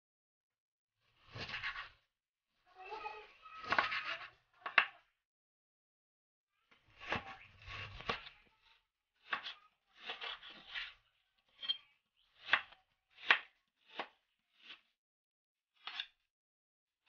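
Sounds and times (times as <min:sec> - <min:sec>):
knife slicing meat on cutting board: 0:01.2 - 0:02.0, 0:03.6 - 0:04.3, 0:09.2 - 0:11.0, 0:12.4 - 0:14.9.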